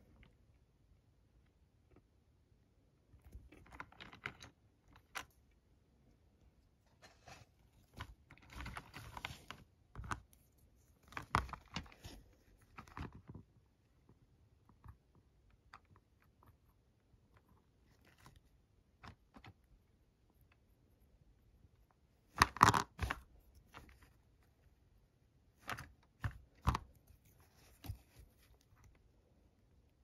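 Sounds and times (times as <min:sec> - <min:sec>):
small plastic clicks and scrapes: 0:07.0 - 0:13.6, 0:22.2 - 0:24.4, 0:25.5 - 0:29.0.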